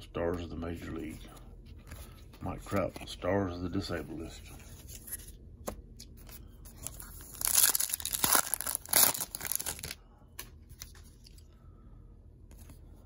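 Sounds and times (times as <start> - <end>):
foil wrapper tearing and crinkling: 6.8 - 10.0.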